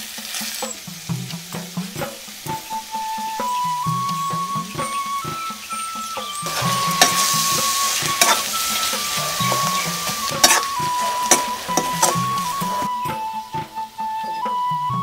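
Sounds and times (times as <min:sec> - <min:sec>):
food sizzling in a wok: 0:00.0 - 0:14.2
flute background music: 0:00.0 - 0:15.0
metal spoon scraping a wok: 0:06.3 - 0:12.9.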